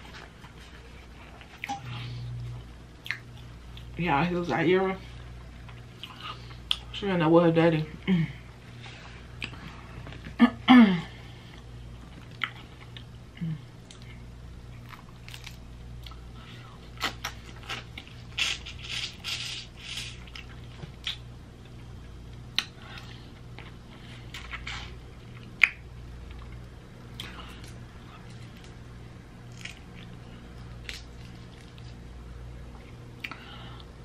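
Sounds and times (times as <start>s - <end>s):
chewing and cracking shell: 14.8s - 16.2s, 29.4s - 32.0s.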